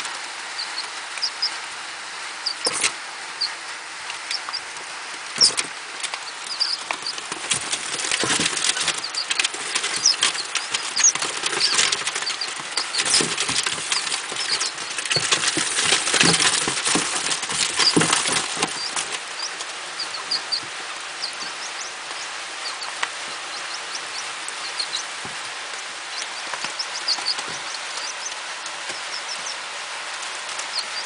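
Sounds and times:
chicks peeping: 0.0s - 31.0s
feet pattering on newspaper: 6.6s - 21.7s.

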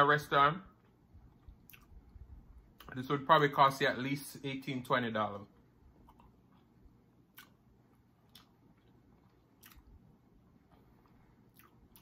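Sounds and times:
quiet eating sounds: 0.6s - 3.3s, 5.4s - 12.0s.

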